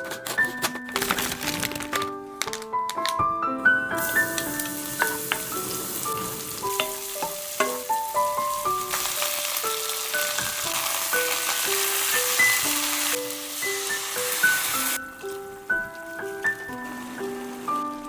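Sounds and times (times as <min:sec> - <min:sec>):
wooden spoon stirring: 0:04.0 - 0:09.0, 0:14.4 - 0:18.0
food sizzling in hot oil: 0:04.0 - 0:18.0.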